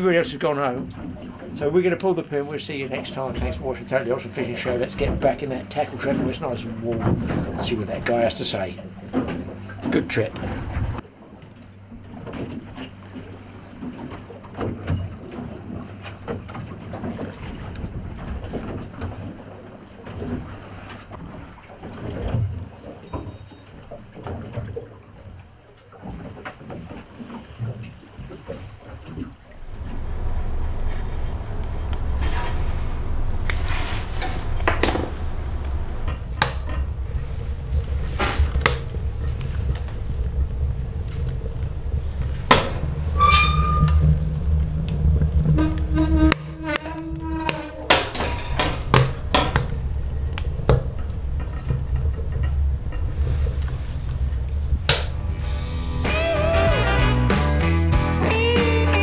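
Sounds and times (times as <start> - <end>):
boat engine hum: 0.0 - 26.0, 29.4 - 59.0
hull splashing on waves: 0.0 - 57.2
steady low rumble: 29.6 - 47.3, 48.0 - 57.3
wood knocking in metal stove: 29.8 - 40.0, 42.2 - 44.1, 47.5 - 53.1.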